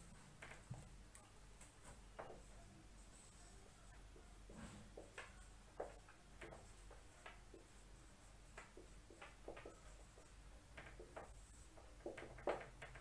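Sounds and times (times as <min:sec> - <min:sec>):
marker pen writing on whiteboard: 0:01.6 - 0:13.0.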